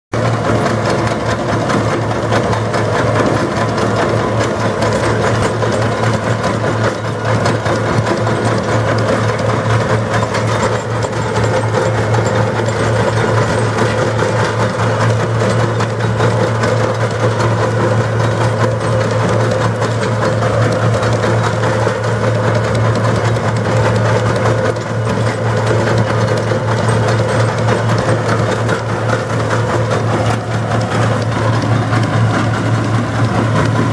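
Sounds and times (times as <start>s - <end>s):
tractor engine running: 0.1s - 33.9s.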